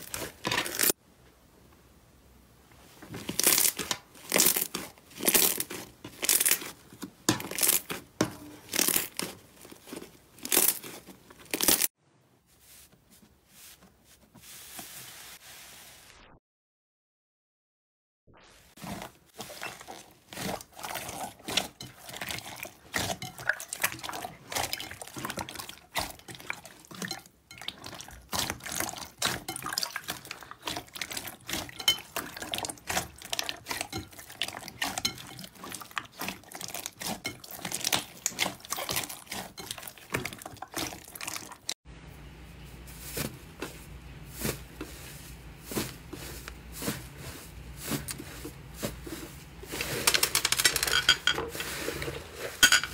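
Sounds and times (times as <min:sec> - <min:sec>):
slime squelching: 0:00.0 - 0:01.0, 0:03.1 - 0:11.9, 0:18.7 - 0:41.8, 0:42.8 - 0:50.3.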